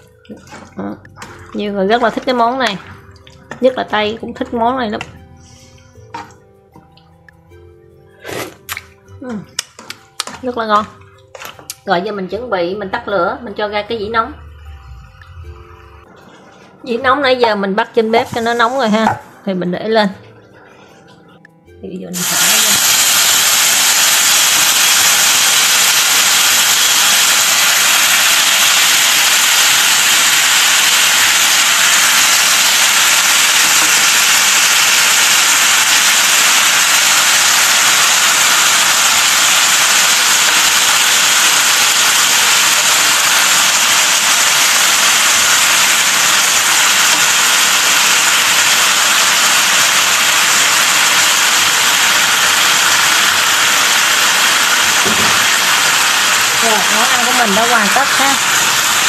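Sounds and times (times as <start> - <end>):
stir-fry sizzling on hot platter: 0.0 - 6.4, 18.1 - 19.3, 22.2 - 59.0.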